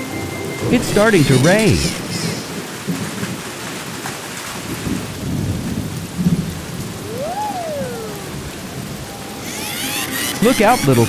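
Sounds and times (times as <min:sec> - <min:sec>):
heavy rain: 0:00.0 - 0:09.6
thunder rumbling: 0:04.6 - 0:09.4
whistling tone: 0:07.1 - 0:08.3.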